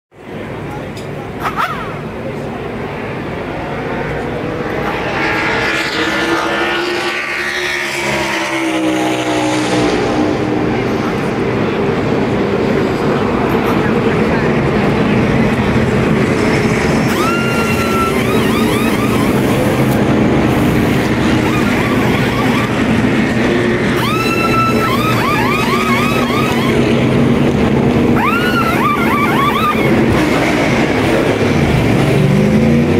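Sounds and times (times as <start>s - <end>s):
race car engines running: 0.2s - 32.9s
pneumatic impact wrench whirs: 17.0s - 23.2s, 23.8s - 27.3s, 28.1s - 30.5s.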